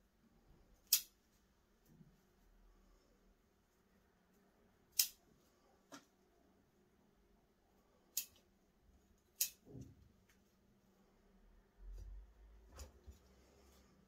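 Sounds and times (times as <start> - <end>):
scissors snipping shoots: 0.8 - 1.1, 4.9 - 5.2, 9.3 - 9.6.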